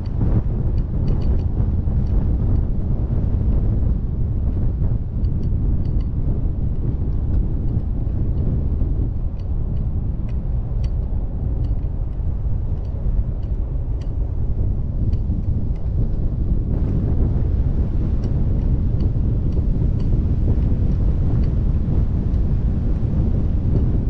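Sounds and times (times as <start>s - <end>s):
light ticks: 0.0s - 2.7s, 5.2s - 6.2s, 6.8s - 14.2s, 15.1s - 16.2s, 18.1s - 21.6s
wind on microphone: 0.0s - 24.0s.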